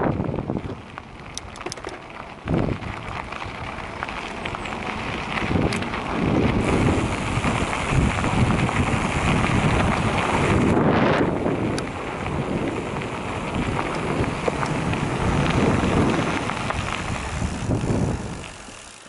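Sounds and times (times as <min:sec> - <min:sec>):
wind on microphone: 0:00.0 - 0:01.8, 0:02.4 - 0:03.8, 0:05.0 - 0:18.8
bike tyres crunching on gravel: 0:00.0 - 0:19.0.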